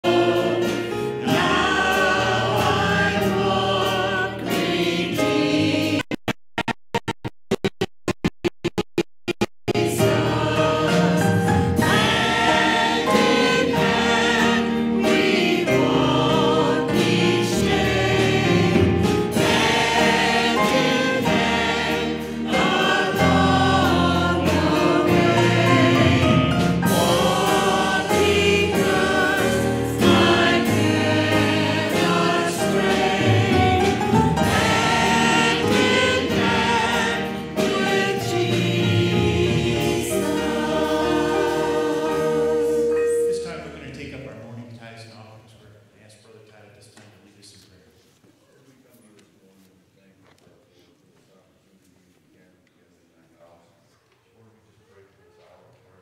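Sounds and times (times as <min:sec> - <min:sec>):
choir singing a hymn: 0:00.0 - 0:06.0, 0:09.8 - 0:44.3.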